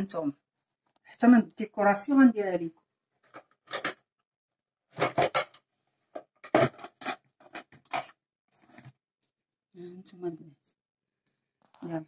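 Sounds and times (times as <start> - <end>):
rubbing and scraping noises: 4.9 - 9.0.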